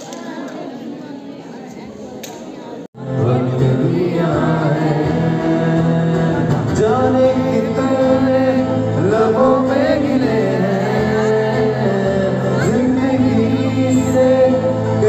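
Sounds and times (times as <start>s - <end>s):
acoustic guitar chords: 3.0s - 15.0s
man singing: 3.0s - 15.0s.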